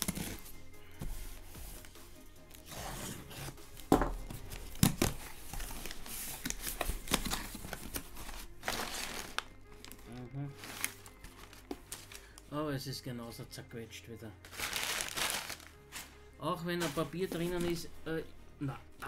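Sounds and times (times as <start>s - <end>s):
packing paper crinkling: 4.6s - 12.4s, 14.5s - 16.2s.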